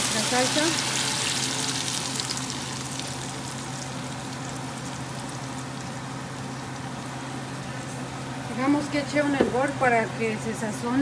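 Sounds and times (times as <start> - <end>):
salsa sizzling in hot oil: 0.0 - 8.3.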